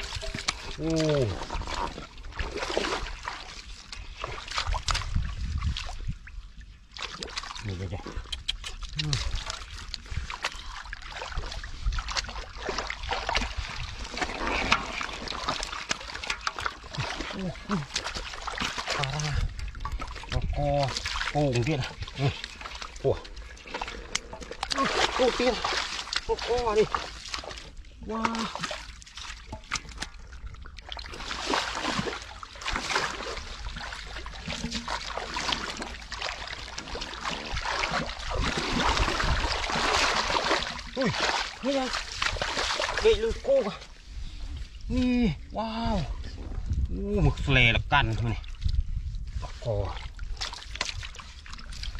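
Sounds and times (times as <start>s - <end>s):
wet slaps and squelches: 0.0s - 5.9s, 7.0s - 19.3s, 23.7s - 30.2s, 30.8s - 43.2s, 50.3s - 51.9s
fish splashing in water: 8.7s - 43.1s.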